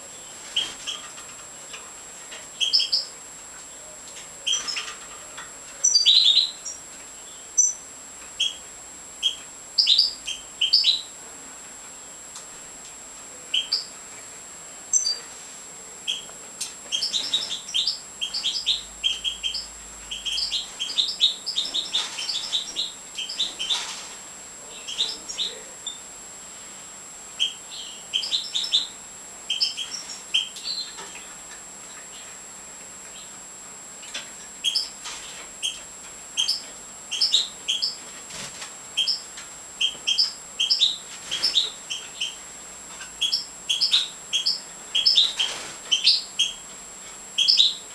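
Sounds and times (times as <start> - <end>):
goldfinches chirping: 2.5 - 3.1, 4.4 - 5.0, 5.8 - 11.1, 13.5 - 13.9, 14.9 - 15.2, 16.0 - 23.8, 24.7 - 26.1, 27.4 - 31.5, 34.0 - 35.0, 35.6 - 38.1, 38.9 - 42.4, 43.1 - 46.6, 47.4 - 47.9.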